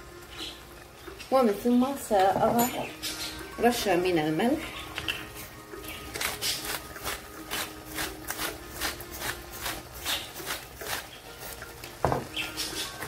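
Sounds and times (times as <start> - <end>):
salt shaker rasping: 6.2 - 11.6
knock: 12.0 - 12.3.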